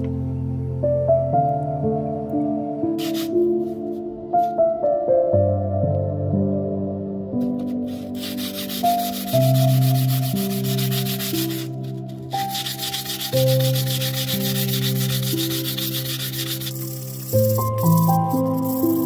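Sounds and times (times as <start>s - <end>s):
soft background music: 0.0s - 19.0s
sanding sponge rubbing wood: 3.0s - 3.3s, 7.6s - 19.0s.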